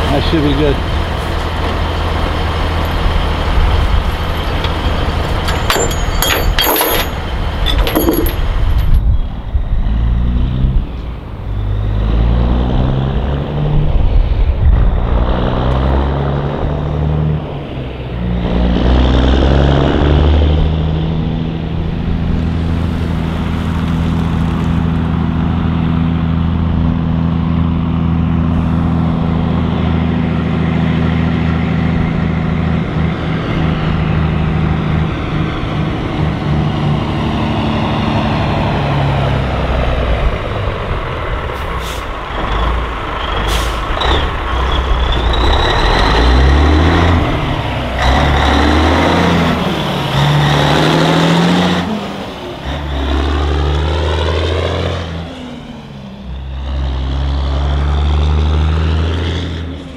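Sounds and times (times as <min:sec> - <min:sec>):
sharp metallic clatters: 0:04.4 - 0:09.0
truck diesel engine pulling away: 0:08.4 - 0:59.9.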